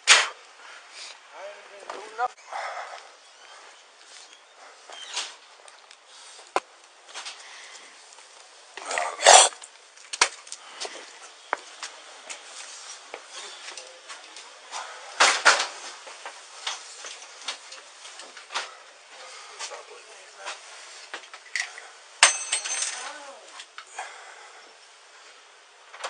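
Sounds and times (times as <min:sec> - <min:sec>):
footsteps on steps: 0:10.1 - 0:14.9.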